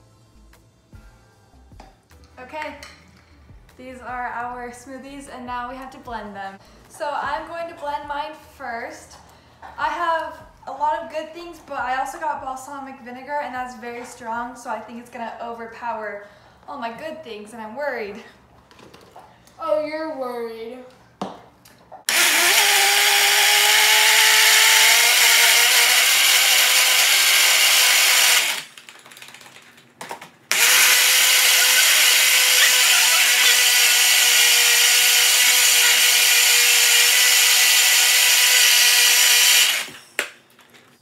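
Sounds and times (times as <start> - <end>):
blender motor whine: 22.1 - 28.7, 30.5 - 40.2.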